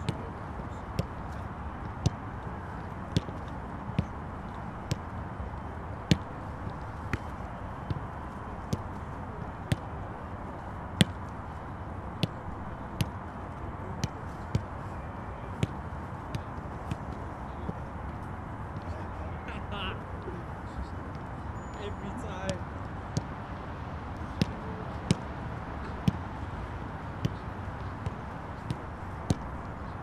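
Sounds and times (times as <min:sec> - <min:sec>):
background noise: 0:00.0 - 0:30.0
football being kicked: 0:00.9 - 0:02.2, 0:03.1 - 0:04.2, 0:04.8 - 0:05.1, 0:06.0 - 0:09.0, 0:11.0 - 0:11.3, 0:12.2 - 0:12.4, 0:14.0 - 0:14.8, 0:15.5 - 0:17.8, 0:24.3 - 0:26.4, 0:27.2 - 0:29.6.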